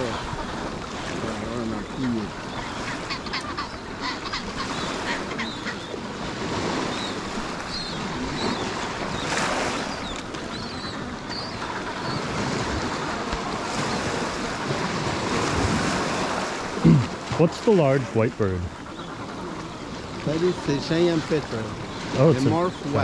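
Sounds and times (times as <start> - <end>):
small waves washing on stony shore: 0.0 - 23.0
wind: 0.0 - 23.0
penguin colony calling: 10.5 - 13.8, 17.7 - 21.3.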